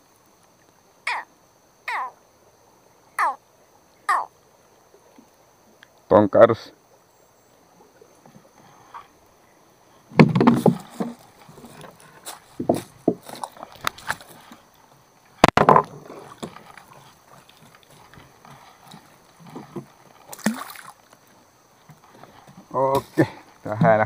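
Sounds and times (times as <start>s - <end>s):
water sloshing: 9.9s - 24.0s
thumps against small boat: 10.1s - 14.3s, 15.4s - 16.8s.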